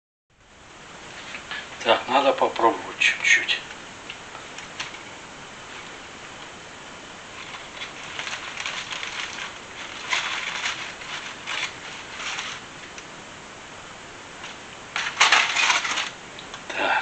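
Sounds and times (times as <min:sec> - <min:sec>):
crisp crust crunching: 0:07.3 - 0:13.1, 0:14.4 - 0:16.5.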